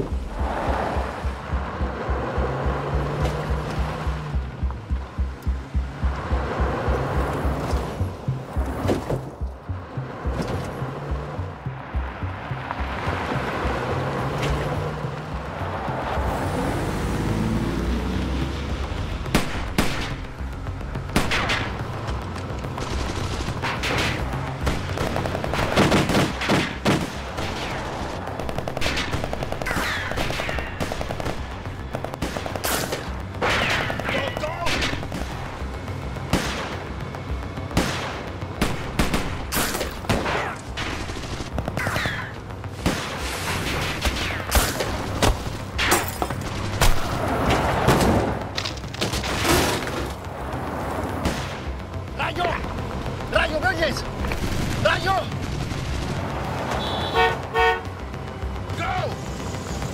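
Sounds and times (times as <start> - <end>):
gunshots: 22.8 - 35.4, 37.7 - 48.3.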